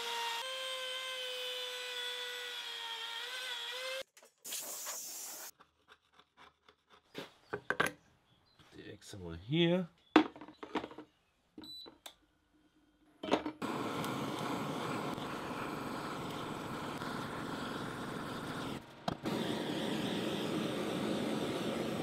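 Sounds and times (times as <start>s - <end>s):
butane torch hissing: 4.5s - 5.5s, 13.6s - 22.0s.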